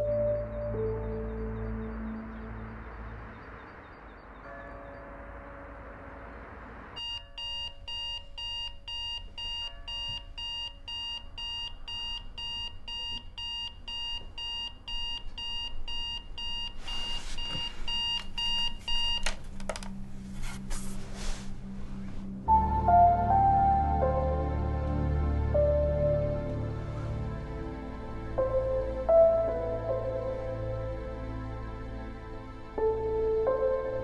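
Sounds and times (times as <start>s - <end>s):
alarm clock beeping: 0.0s - 19.3s.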